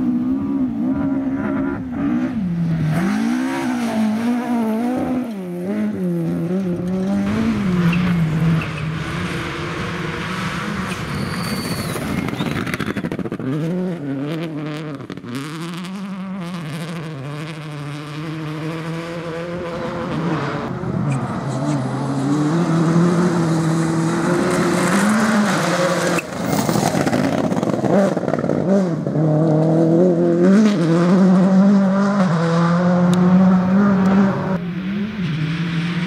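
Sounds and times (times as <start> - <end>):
rally car engine revving: 0.0 - 36.0.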